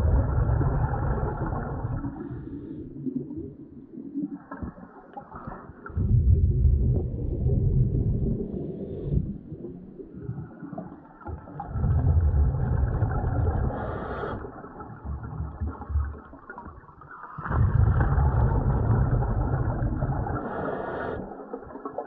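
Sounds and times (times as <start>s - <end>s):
scuba exhalation bubbles: 0.0s - 3.6s, 4.4s - 9.4s, 11.3s - 22.0s
scuba regulator inhalation: 13.6s - 14.6s, 20.4s - 21.3s.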